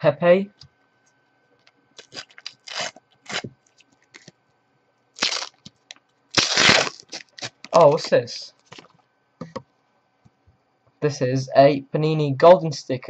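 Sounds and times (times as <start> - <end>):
wrapper tearing: 2.0 - 3.5, 4.1 - 4.3, 5.2 - 7.8
wrapper crinkling: 2.0 - 4.3, 5.2 - 7.8.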